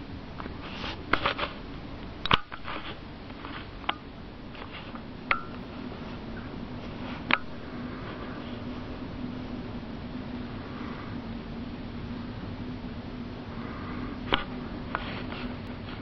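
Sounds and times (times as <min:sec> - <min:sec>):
low hum and hiss: 0:00.0 - 0:16.0
person breathing: 0:10.4 - 0:11.3, 0:13.4 - 0:16.0.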